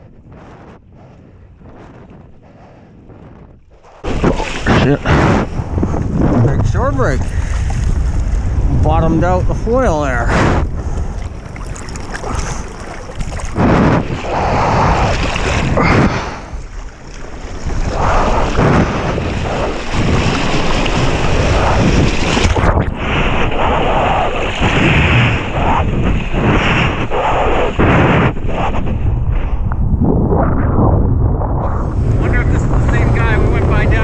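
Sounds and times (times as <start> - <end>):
wind buffeting microphone: 0.0 - 34.0
waves breaking: 3.7 - 28.9
water splashing: 4.0 - 9.0, 9.6 - 27.0.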